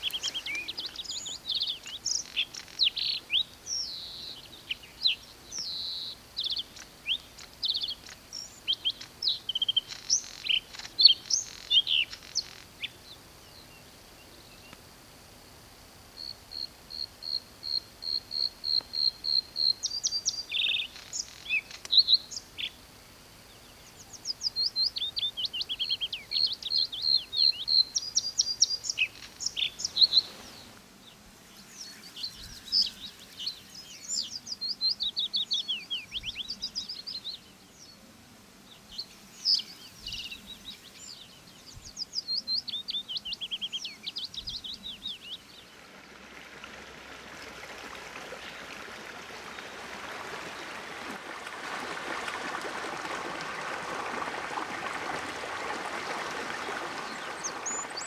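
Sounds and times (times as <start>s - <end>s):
stream water spilling over weir: 45.5s - 58.0s.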